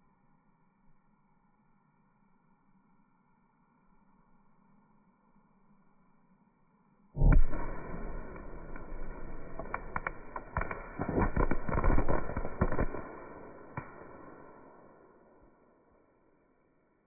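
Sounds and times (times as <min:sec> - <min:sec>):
firework blast rumble: 0:07.2 - 0:15.6
firework stars crackling and popping: 0:07.2 - 0:15.8.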